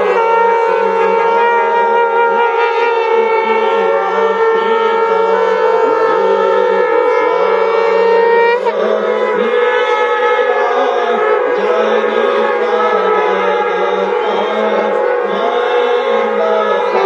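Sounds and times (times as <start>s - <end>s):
conch shells blowing: 0.0s - 17.0s.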